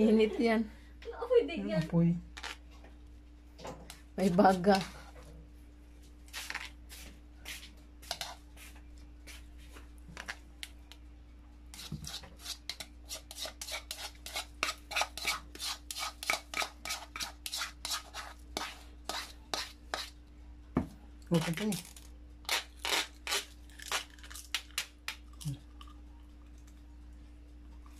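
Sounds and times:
spoon scraping mayonnaise: 0:08.0 - 0:08.7, 0:11.7 - 0:20.2.

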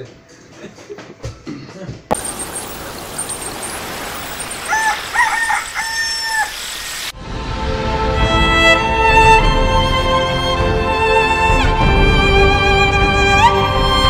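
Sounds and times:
faint high chirps: 0:02.1 - 0:07.1
rooster crowing: 0:02.1 - 0:07.1
steady hiss: 0:02.1 - 0:07.2
string music: 0:07.2 - 0:14.0.

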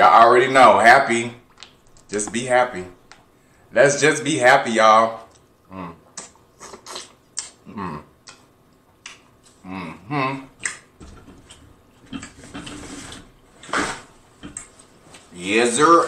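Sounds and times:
lip smacks: 0:06.1 - 0:07.6, 0:08.2 - 0:09.6, 0:10.6 - 0:10.9.

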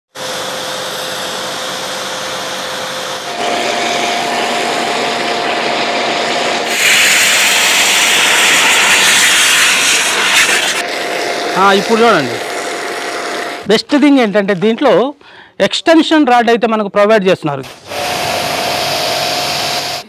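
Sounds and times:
pressure washer motor whine: 0:00.1 - 0:13.7, 0:17.7 - 0:20.0
water jet blasting cardboard: 0:00.1 - 0:14.3, 0:17.6 - 0:20.0
water spray hissing: 0:06.5 - 0:13.7.

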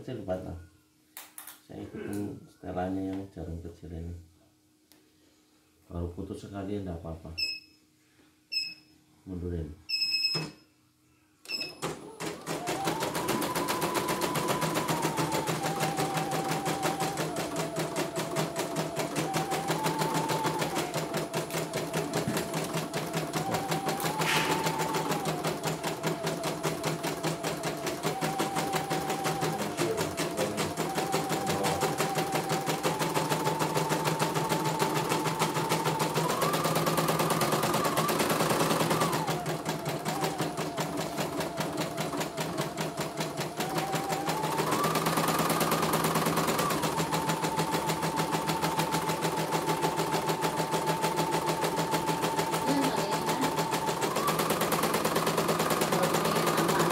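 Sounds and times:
motor whine changing pitch: 0:12.5 - 0:56.9
embroidery machine needle rattle: 0:21.5 - 0:56.9.

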